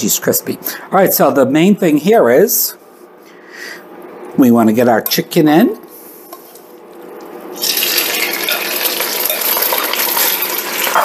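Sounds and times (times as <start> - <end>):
chicken sizzling in hot oil: 7.6 - 11.0.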